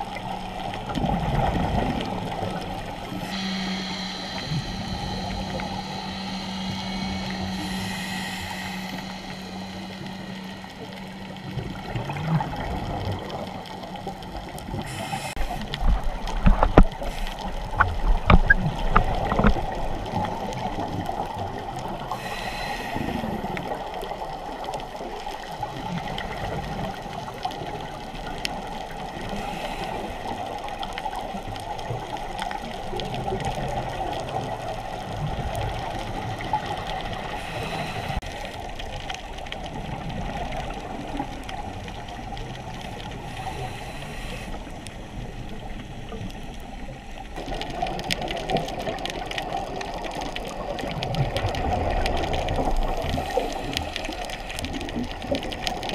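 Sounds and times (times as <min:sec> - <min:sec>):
muffled underwater rush with bubbling: 0:00.0 - 0:55.9
knocks and gurgles: 0:17.8 - 0:19.7.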